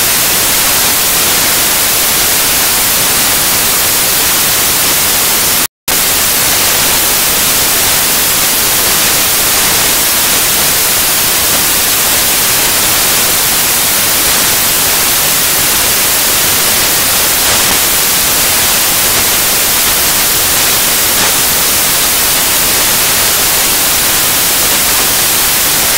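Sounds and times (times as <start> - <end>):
static hiss: 0.0 - 25.9.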